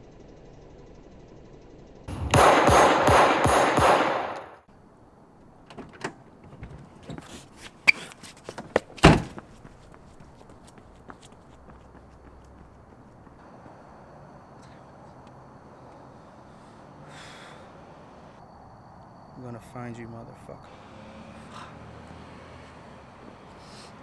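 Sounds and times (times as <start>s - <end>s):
rapid handgun gunfire: 2.1s - 4.6s.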